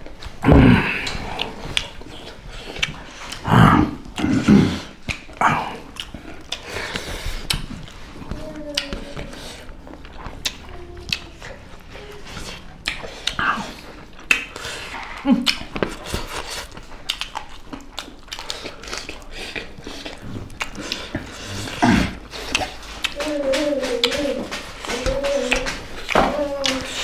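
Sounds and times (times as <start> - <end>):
people chewing and biting: 0.0 - 27.0.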